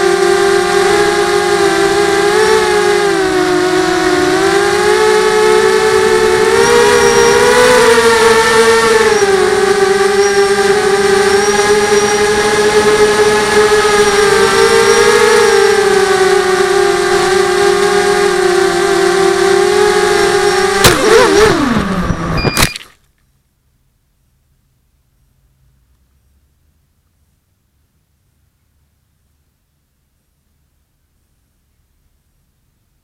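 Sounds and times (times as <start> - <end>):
model aircraft motor whining: 0.0 - 22.4
aircraft hitting the ground: 20.7 - 22.5.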